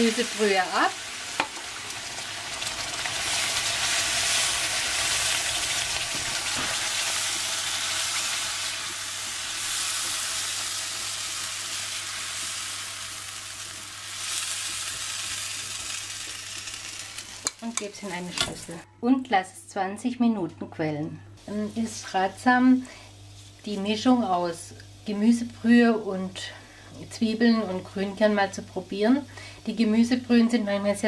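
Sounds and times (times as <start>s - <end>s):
broth sizzling in frying pan: 0.0s - 18.8s.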